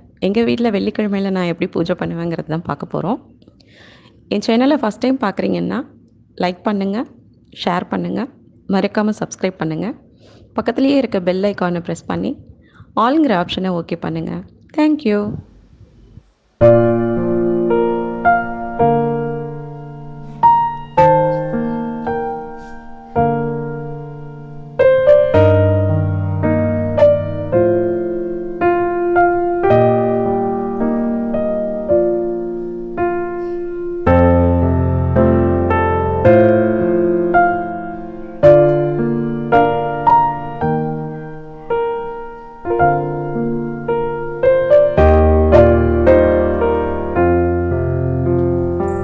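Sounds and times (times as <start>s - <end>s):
slow piano melody: 16.6s - 49.0s.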